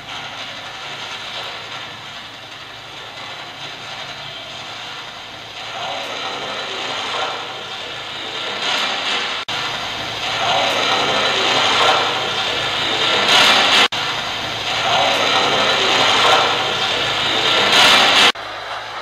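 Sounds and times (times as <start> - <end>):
radio static and rasping noise: 10.2 - 18.4.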